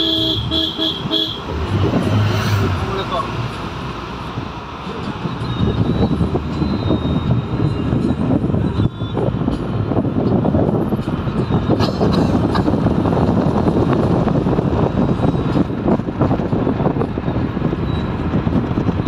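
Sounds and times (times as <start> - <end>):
car road noise rumble: 0.0 - 19.0.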